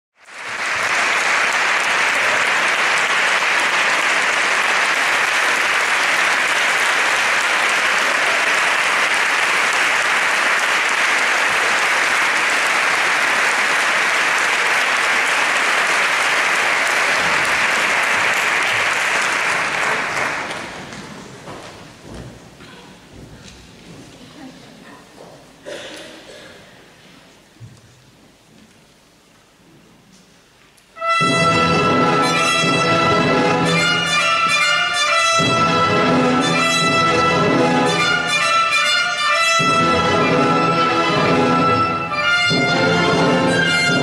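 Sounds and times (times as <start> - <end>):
audience applauding: 0.2 - 21.6.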